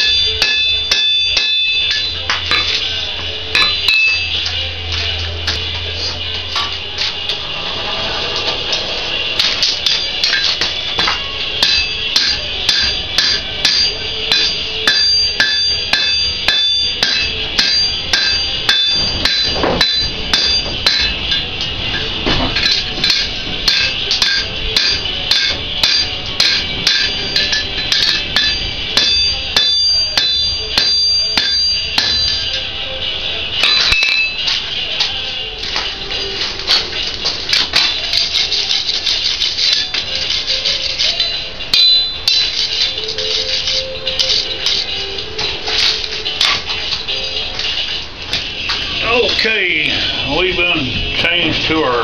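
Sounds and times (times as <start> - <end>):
hammer striking iron on anvil: 0.0 - 2.9, 3.5 - 4.6, 9.4 - 32.7, 33.6 - 34.6, 41.2 - 43.2
anvil ringing: 0.0 - 4.8, 9.3 - 33.0, 33.6 - 34.6, 36.2 - 47.4.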